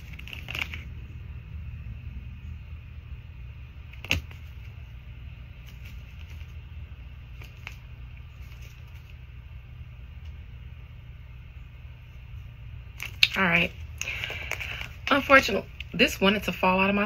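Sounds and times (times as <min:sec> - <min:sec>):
cards being shuffled: 0:00.0 - 0:00.9, 0:03.9 - 0:04.8, 0:05.6 - 0:06.6, 0:07.3 - 0:09.2, 0:13.0 - 0:13.4, 0:14.0 - 0:15.3
low hum: 0:00.0 - 0:17.0.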